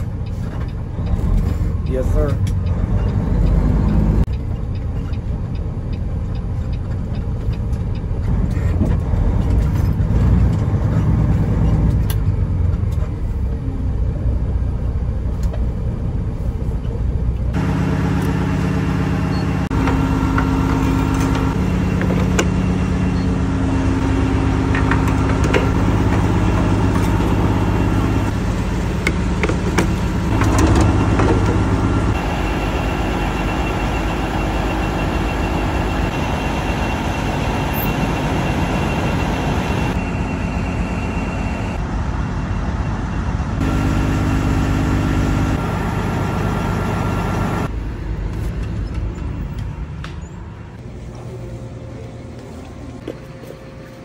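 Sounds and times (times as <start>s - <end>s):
diesel truck engine rumbling: 0.0s - 54.0s
idling truck engines hum: 0.0s - 54.0s.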